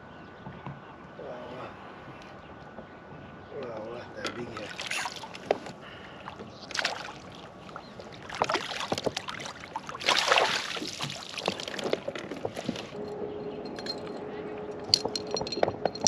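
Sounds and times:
water splashing: 4.3 - 13.0.

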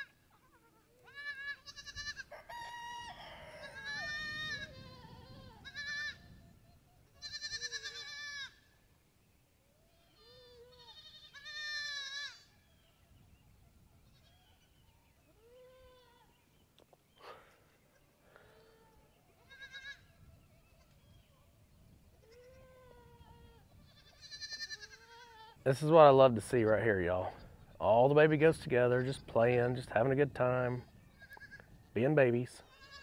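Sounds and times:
goats bleating: 0.0 - 2.3, 3.5 - 6.2, 7.2 - 8.6, 10.1 - 12.5, 18.5 - 20.0, 22.2 - 25.6, 32.6 - 33.0.

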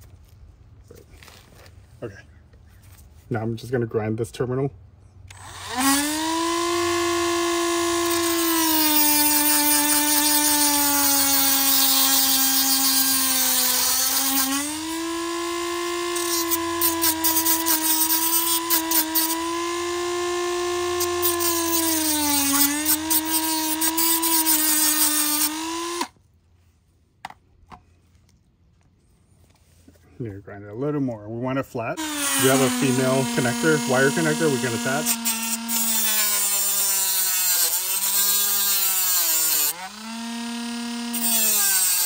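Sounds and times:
rotary tool whining: 5.3 - 26.1, 32.0 - 42.0.

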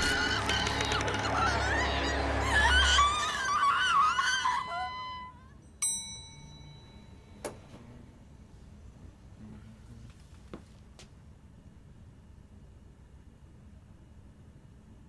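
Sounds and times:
person screaming: 0.0 - 5.2
held musical note: 0.0 - 5.6
bright ringing ding: 5.6 - 7.7.

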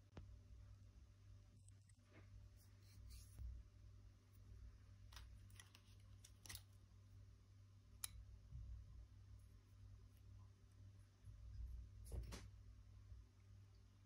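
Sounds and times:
low steady hum: 0.0 - 14.0
metal pens clicking and tapping: 5.1 - 6.8.

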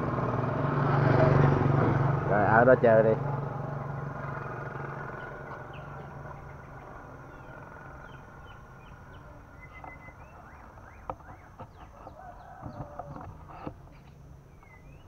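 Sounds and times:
motor engine hum: 0.0 - 15.0
small birds chirping: 3.8 - 15.0.

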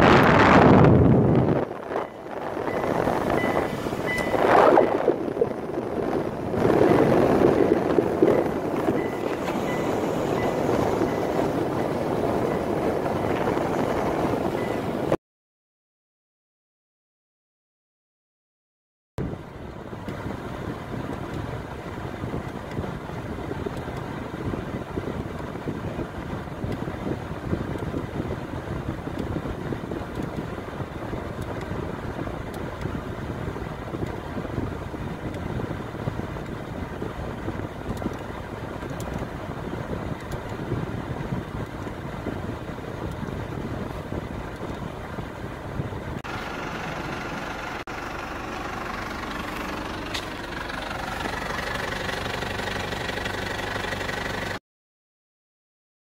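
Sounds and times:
car engine idling: 29.0 - 54.6.

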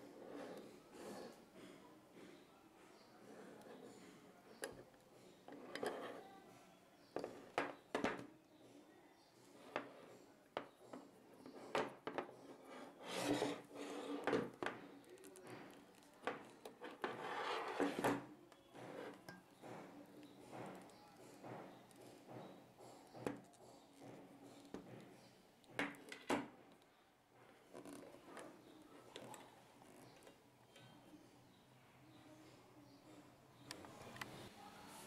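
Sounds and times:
rubbing and scraping: 10.8 - 18.2.

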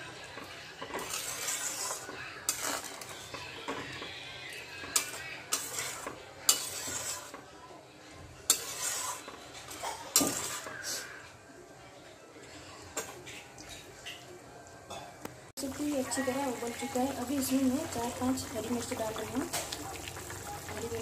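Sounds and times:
spatula scraping and sloshing curry: 0.2 - 7.5, 8.4 - 11.2
metal clinking on pan: 4.9 - 7.1.

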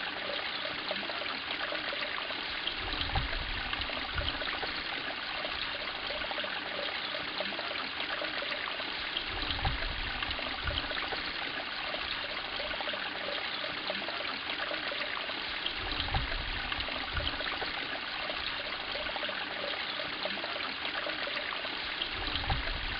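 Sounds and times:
water trickling into pond: 0.0 - 22.9.

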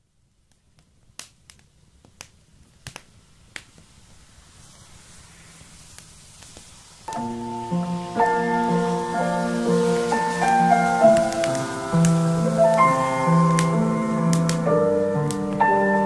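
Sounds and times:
soft hiss: 0.0 - 16.0
sharp clicks and crackles: 0.4 - 4.2, 5.6 - 7.3, 9.8 - 15.7
piano notes: 7.1 - 16.0.

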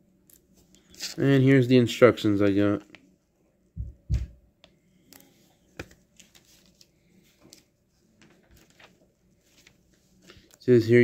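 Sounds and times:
dull thumps: 3.8 - 4.4
paper booklet rustling: 5.0 - 11.0.

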